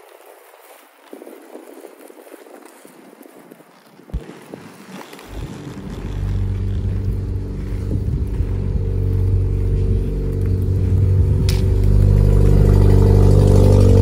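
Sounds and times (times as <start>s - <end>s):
skate wheel clicks: 0.0s - 7.6s, 11.4s - 13.2s
inline skate wheels rolling: 0.0s - 14.0s.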